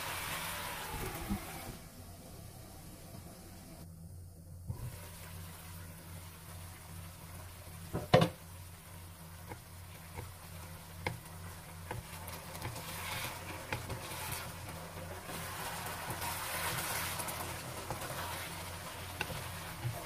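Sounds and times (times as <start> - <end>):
sauce sizzling: 0.0 - 3.8, 4.7 - 20.0
steady low hum: 0.9 - 15.6
spatula scraping a wok: 11.4 - 20.0.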